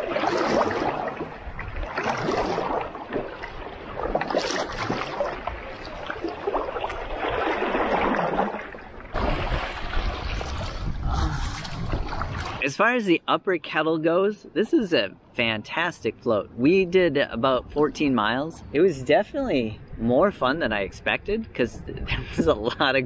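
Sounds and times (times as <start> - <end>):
paddle strokes splashing: 0.0 - 12.6
water washing along hull: 0.0 - 12.7.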